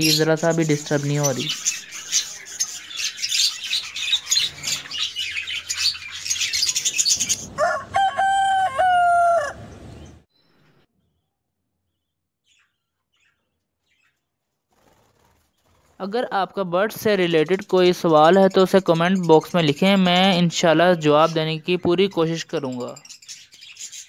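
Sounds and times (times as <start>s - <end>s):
chicks chirping high-pitched: 0.0s - 10.2s
rooster crowing: 7.5s - 9.8s.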